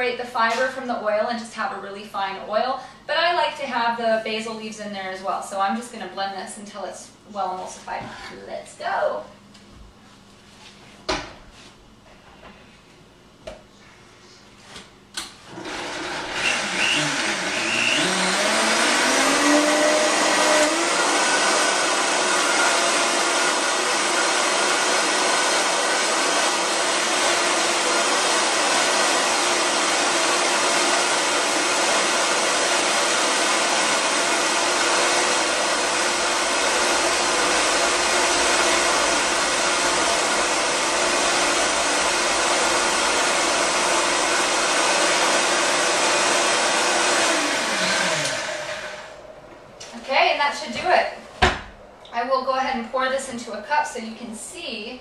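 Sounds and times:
blender motor whirring: 15.5 - 49.2.

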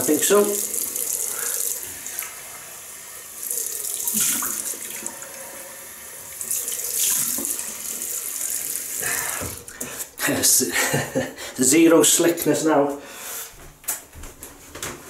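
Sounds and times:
water splashing: 0.0 - 9.9
tap water running into sink: 0.0 - 10.1.

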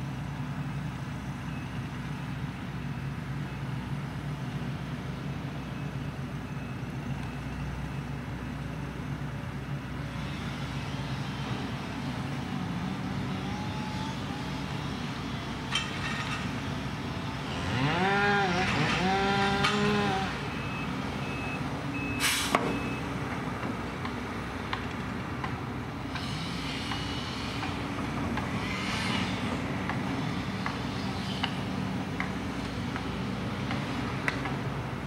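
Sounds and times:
diesel engine whining: 0.0 - 35.0
faint short beeps: 20.6 - 23.0.

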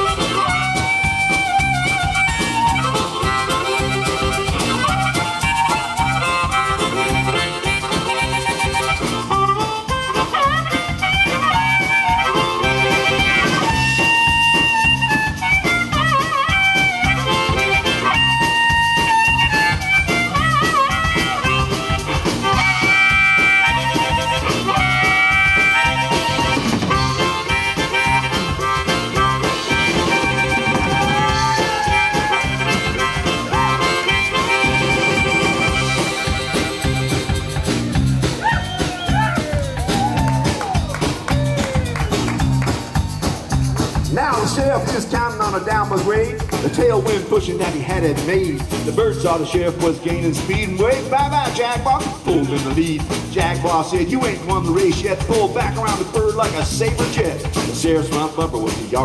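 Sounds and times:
amplified blues harmonica solo: 0.0 - 59.0
drums rock and roll beat: 0.0 - 59.0
electric guitar: 0.0 - 59.0.

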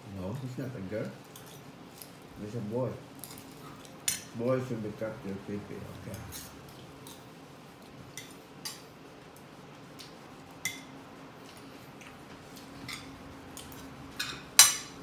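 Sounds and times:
cutlery clinking on plates: 12.8 - 15.0.

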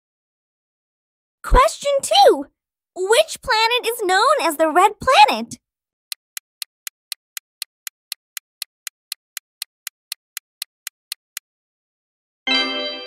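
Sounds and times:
countdown clock ticking: 6.1 - 11.4.

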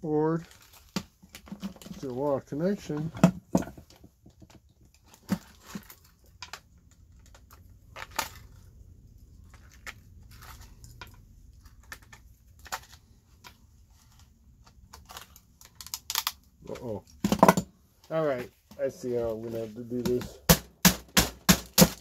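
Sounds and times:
plastic and metal clicks and snaps: 14.6 - 17.6.

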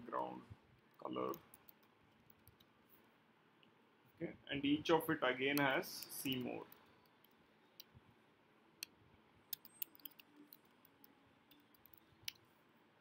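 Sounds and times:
laptop keyboard typing: 1.2 - 2.7, 5.5 - 7.9, 9.5 - 12.4.

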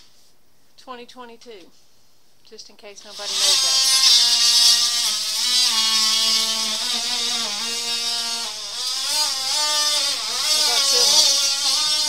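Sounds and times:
power tool cutting wood: 3.1 - 12.0.

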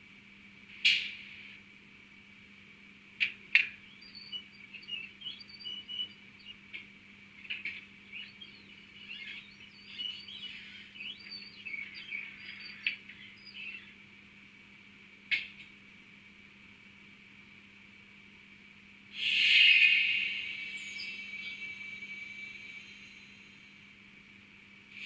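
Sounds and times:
high chirping squeaks and hisses: 8.1 - 13.6, 19.2 - 23.6.

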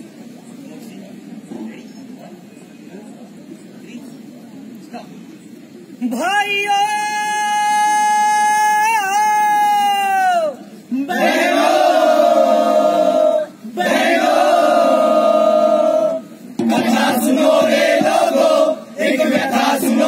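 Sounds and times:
group singing in unison: 11.1 - 20.0.

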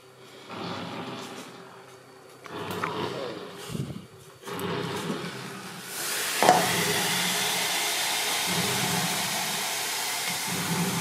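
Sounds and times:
food frying in pot: 5.8 - 11.0
glass pot lid clinking: 6.4 - 6.9.

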